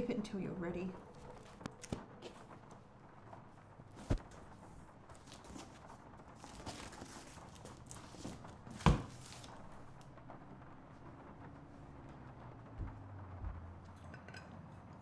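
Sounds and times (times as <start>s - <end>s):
cardboard rustling and scraping: 1.1s - 9.9s
cardboard box thumps: 4.0s - 4.4s, 8.2s - 9.3s.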